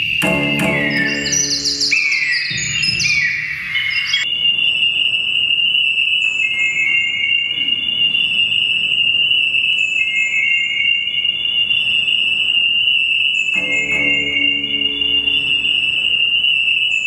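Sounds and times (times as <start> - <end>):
falling feedback chirps: 0.0 - 4.2, 13.6 - 16.8
high-pitched feedback whistle: 0.0 - 17.0.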